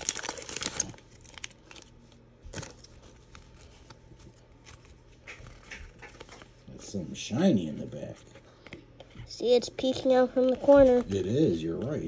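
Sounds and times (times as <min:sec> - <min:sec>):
foil wrapper crinkling: 0:00.0 - 0:06.7
cards rustling and clicking: 0:02.5 - 0:06.7, 0:09.8 - 0:12.0.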